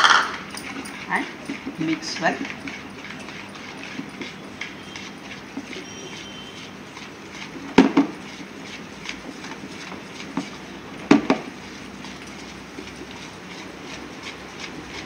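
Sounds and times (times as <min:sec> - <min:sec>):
spoon stirring batter in plastic bowl: 0:00.4 - 0:15.0.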